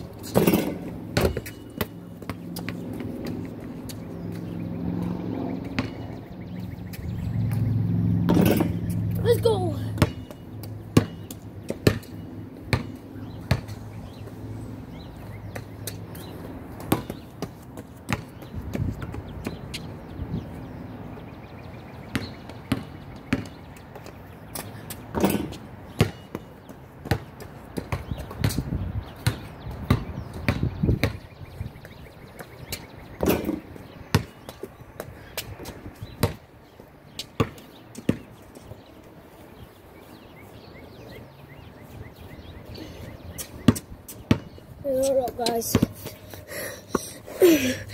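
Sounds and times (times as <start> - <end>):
basketball bouncing and hitting hoop: 0.1 - 4.6, 5.6 - 6.3, 6.9 - 14.2, 15.5 - 19.9, 22.1 - 31.3, 32.3 - 34.7, 35.6 - 36.5, 37.3 - 38.3, 43.4 - 46.1.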